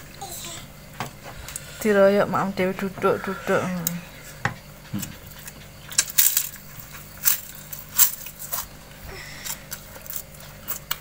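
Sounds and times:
person crunching crisp food: 0:05.9 - 0:11.0.

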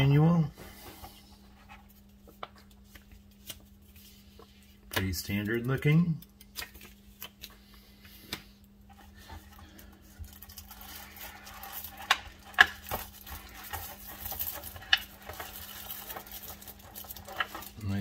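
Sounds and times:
plastic bag rustling and crinkling: 0:09.1 - 0:18.0.

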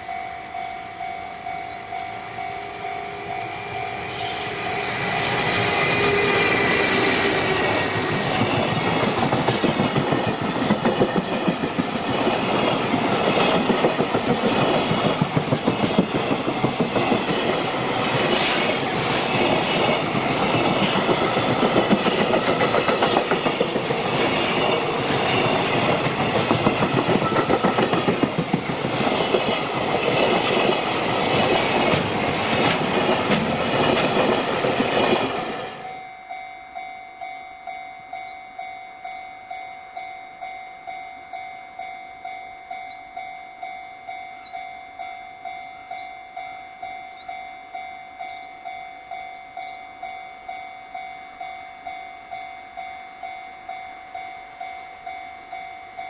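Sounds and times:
level crossing bell ringing: 0:00.0 - 0:04.2, 0:35.8 - 0:56.0
train wheels clattering over rail joints: 0:06.3 - 0:35.6.

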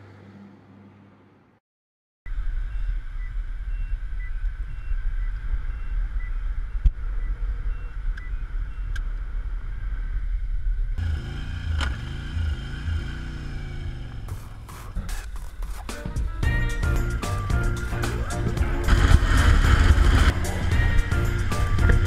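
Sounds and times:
motorcycle engine running: 0:11.0 - 0:22.0.

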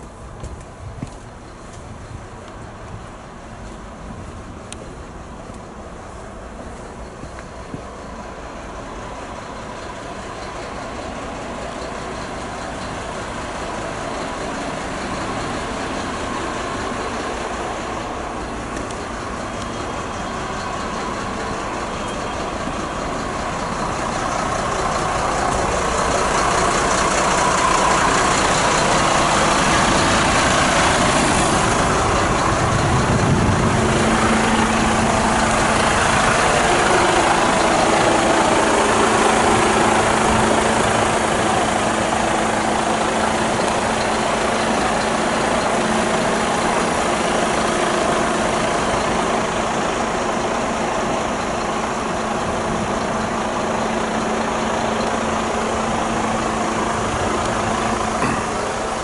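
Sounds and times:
diesel engine idling: 0:00.0 - 0:59.0.

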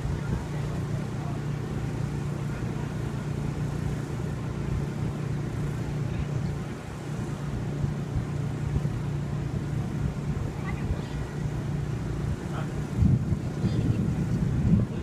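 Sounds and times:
low mechanical hum: 0:00.0 - 0:15.0
wind buffeting microphone: 0:00.0 - 0:15.0.

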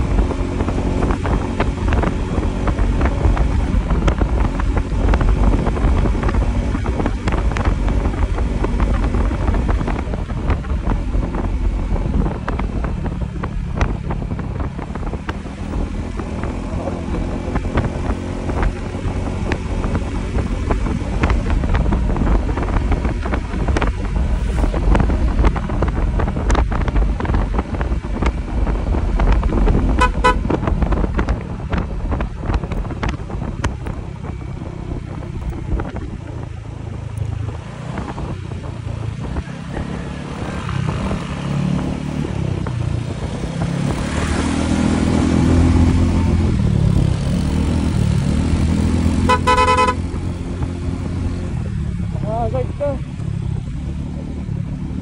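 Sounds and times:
motorcycle engine: 0:00.0 - 0:55.0
other motorcycle engine: 0:00.0 - 0:55.0
wind noise: 0:00.0 - 0:55.0
horn toots: 0:30.0 - 0:30.6, 0:49.1 - 0:50.2.

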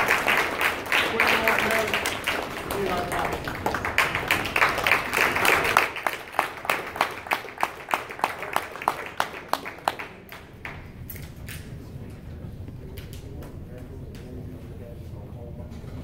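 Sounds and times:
small group applauding: 0:00.0 - 0:11.7.

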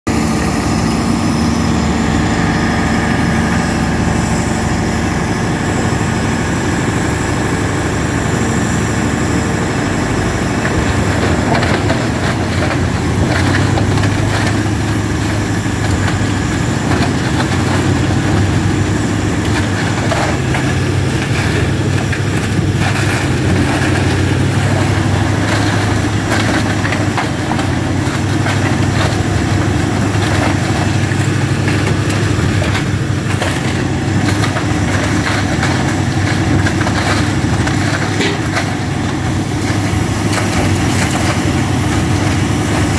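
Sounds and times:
diesel engine running: 0:00.1 - 0:42.9
timber cracking in shredder: 0:10.0 - 0:42.9.

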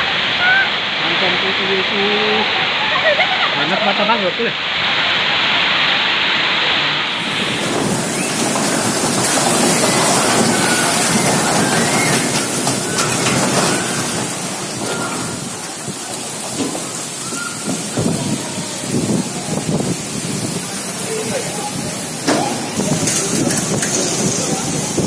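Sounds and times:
heavy rain: 0:00.0 - 0:25.0
wind rushing: 0:05.3 - 0:25.0
low rumbles: 0:05.8 - 0:25.0.

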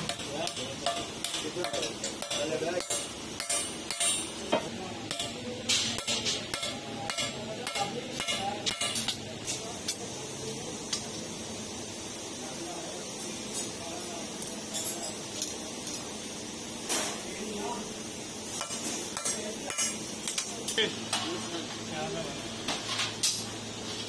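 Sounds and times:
hammer striking steel: 0:00.0 - 0:09.2, 0:18.6 - 0:20.5.

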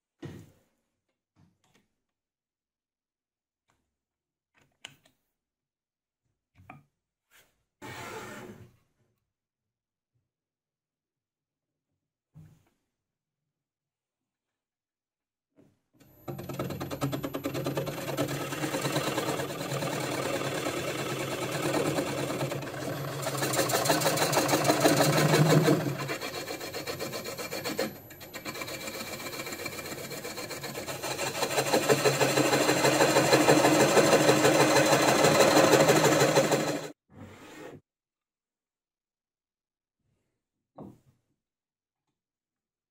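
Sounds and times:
blade scraping turning wood: 0:17.8 - 0:36.9
lathe motor hum: 0:18.2 - 0:36.9.

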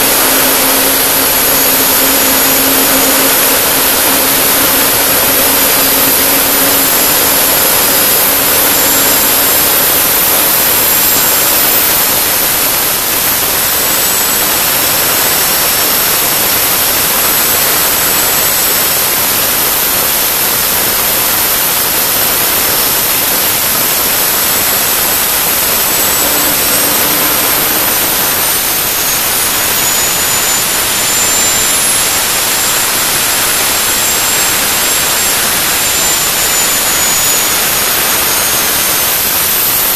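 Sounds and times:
high whistle: 0:00.0 - 0:16.0, 0:23.5 - 0:39.9
gas turbine jet rush: 0:00.0 - 0:39.9.

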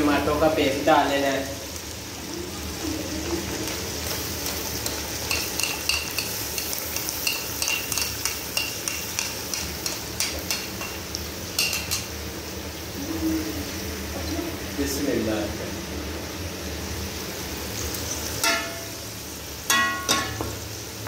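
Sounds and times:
chicken sizzling in oil: 0:00.0 - 0:21.0
metal spoon clinking on bowl: 0:04.8 - 0:11.0, 0:11.6 - 0:12.1.

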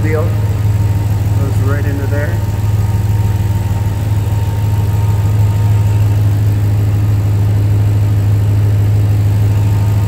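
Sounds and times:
engine idling: 0:00.0 - 0:10.0.

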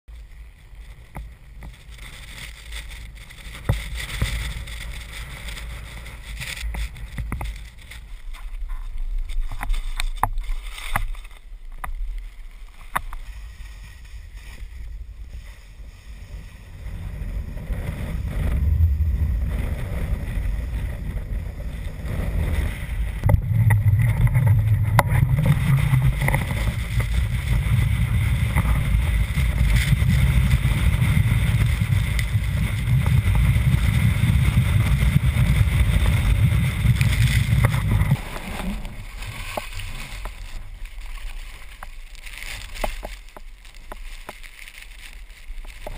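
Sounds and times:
sharp clicks and crackles: 0:00.1 - 0:45.9
wind buffeting microphone: 0:13.1 - 0:41.8.

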